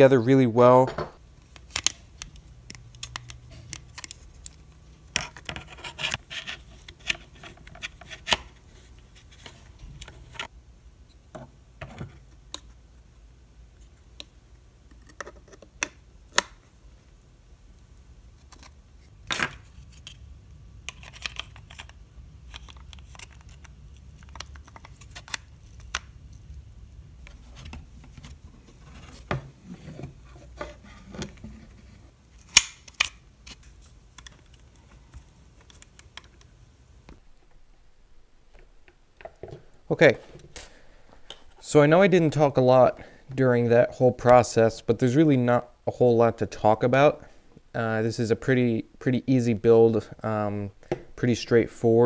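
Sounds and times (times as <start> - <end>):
low steady hum: 0.0 - 52.0
plastic parts clicking and scraping: 20.8 - 26.5.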